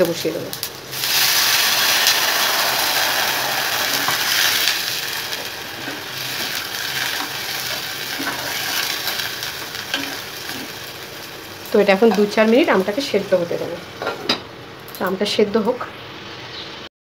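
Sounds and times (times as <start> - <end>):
water sizzling in hot oil: 0.0 - 14.0
spoon stirring a pan: 5.4 - 10.8, 12.0 - 12.4.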